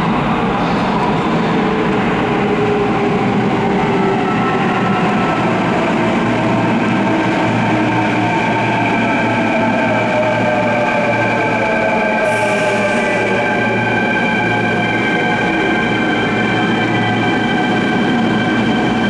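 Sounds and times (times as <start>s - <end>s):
electric train slowing: 0.0s - 19.0s.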